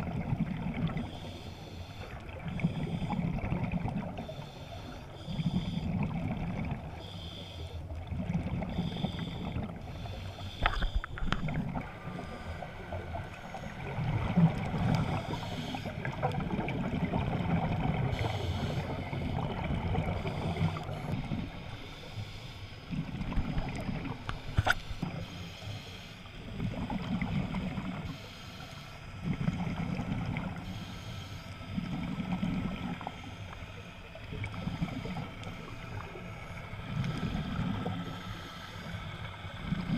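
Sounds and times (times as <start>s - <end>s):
underwater regulator exhaust bubbles: 8.0s - 22.0s, 22.8s - 25.4s.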